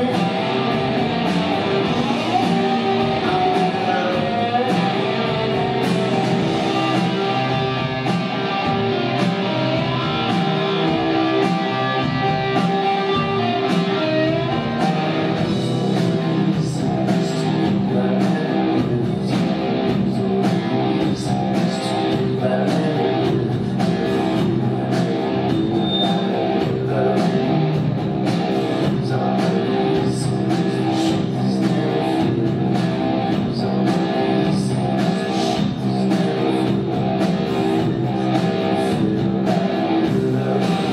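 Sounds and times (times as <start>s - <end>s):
drums and cymbals: 0.0s - 40.9s
electric guitar: 0.0s - 40.9s.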